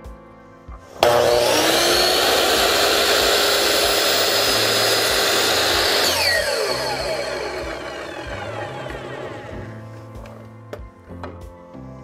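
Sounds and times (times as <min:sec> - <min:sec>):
miter saw whining: 0:00.9 - 0:09.8.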